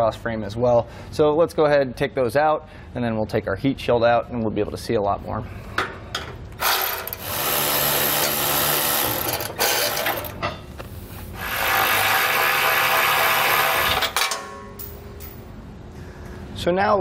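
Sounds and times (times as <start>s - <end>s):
power ratchet running: 6.6s - 10.4s, 11.3s - 14.2s.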